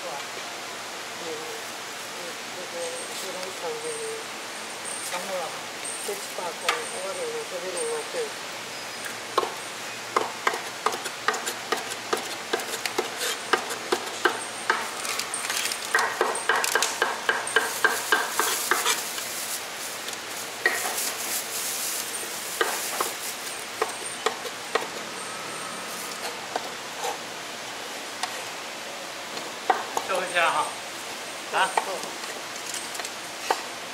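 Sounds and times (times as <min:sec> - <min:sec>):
cleaver chopping on wooden board: 0:23.8 - 0:25.0.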